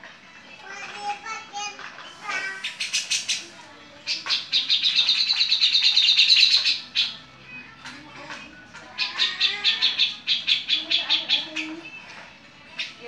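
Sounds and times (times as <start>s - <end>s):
bird harsh rasping song: 2.1s - 7.5s, 8.4s - 13.0s.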